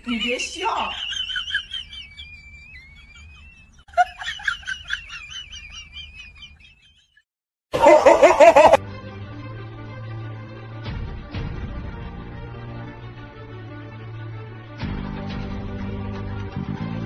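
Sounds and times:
comic laughter sound effect: 0.9s - 7.0s, 7.8s - 8.8s
background music: 7.8s - 17.0s.

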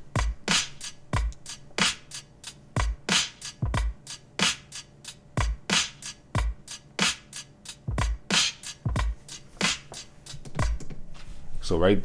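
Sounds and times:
hi-hat ticks: 0.1s - 10.9s
kick drum thumps: 0.2s - 0.5s, 2.8s - 4.0s, 7.9s - 8.3s, 8.9s - 9.8s, 10.4s - 11.0s.

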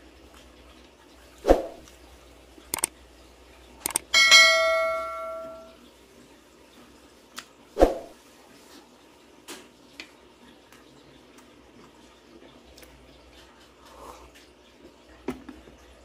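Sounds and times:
tableware strike ringing: 4.2s - 5.7s.

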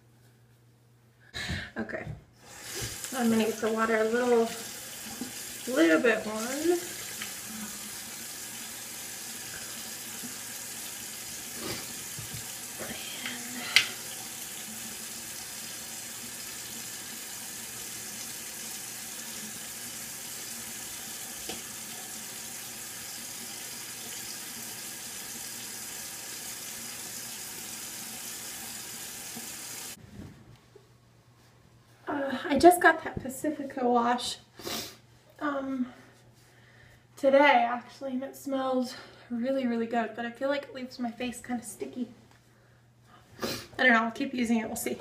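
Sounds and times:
tap water pouring into sink: 2.6s - 5.8s, 6.4s - 12.8s, 13.8s - 30.0s.

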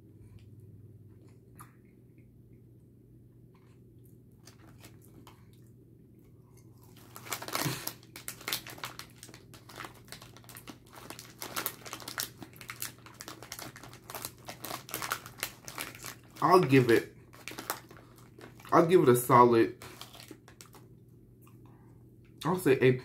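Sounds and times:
plastic packaging crinkling: 6.8s - 20.9s.

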